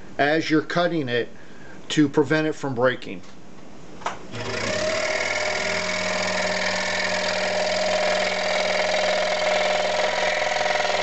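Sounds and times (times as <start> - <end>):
scroll saw cutting wood: 4.3 - 11.0.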